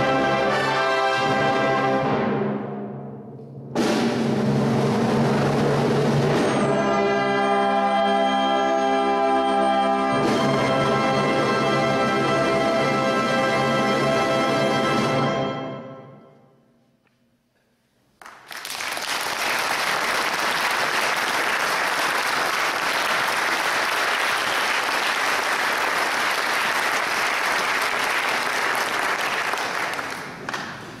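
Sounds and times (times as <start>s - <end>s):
brass band chord: 0.0s - 2.5s, 6.6s - 16.2s
audience applauding: 18.2s - 31.0s.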